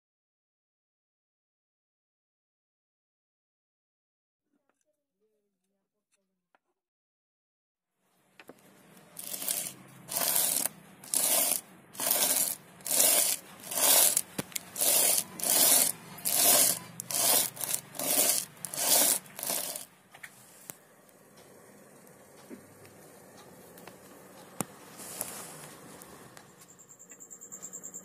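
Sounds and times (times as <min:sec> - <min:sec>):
wood block sanding strokes: 0:09.2 - 0:19.9.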